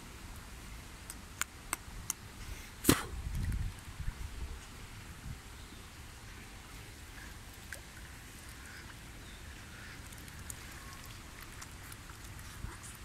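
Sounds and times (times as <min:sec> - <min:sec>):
swans splashing water: 0:06.5 - 0:13.0
small ticks: 0:10.0 - 0:13.0.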